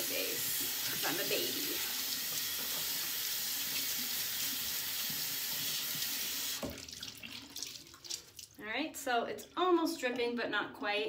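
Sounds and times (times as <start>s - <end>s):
tap running water into basin: 0.0s - 8.6s.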